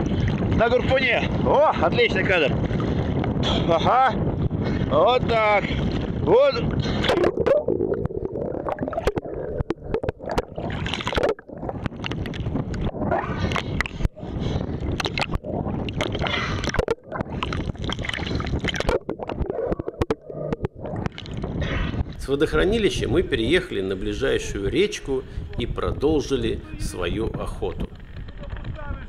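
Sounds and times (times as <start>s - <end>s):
water sloshing and gurgling: 0.0s - 28.8s
splashes and knocks: 6.8s - 14.1s, 15.0s - 21.7s.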